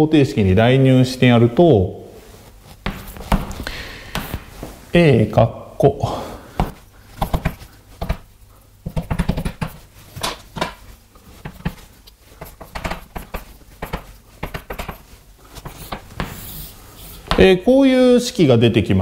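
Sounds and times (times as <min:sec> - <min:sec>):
pen tapping and scraping: 0:06.6 - 0:08.2, 0:08.8 - 0:10.8, 0:11.4 - 0:16.6.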